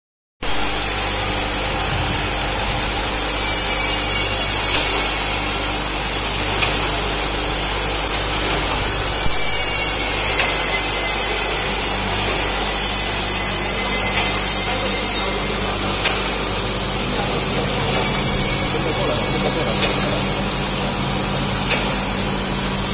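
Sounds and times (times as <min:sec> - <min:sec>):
filling machine hiss and hum: 0:00.4 - 0:22.9.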